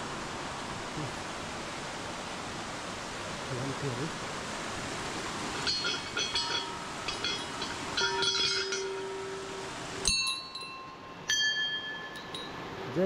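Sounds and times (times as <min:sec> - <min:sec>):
steady hiss: 0:00.0 - 0:13.0
temple bells ringing: 0:05.6 - 0:12.6.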